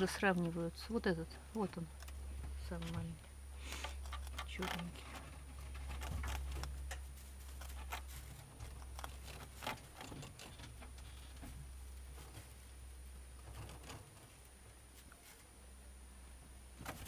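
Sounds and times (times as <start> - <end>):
rabbits chewing grass: 0.0 - 17.0
steady low hum: 0.0 - 17.0.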